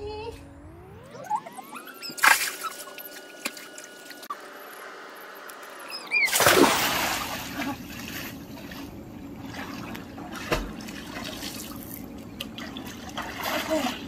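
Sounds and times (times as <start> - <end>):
water sloshing and lapping: 2.0 - 4.4, 6.1 - 14.0
big splash into pool: 6.3 - 7.8.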